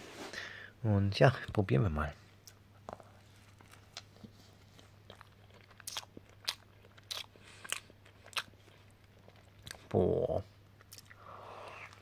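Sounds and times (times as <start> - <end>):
faint low hum: 0.0 - 12.0
chewing with soft crunches: 2.4 - 10.0, 10.6 - 12.0.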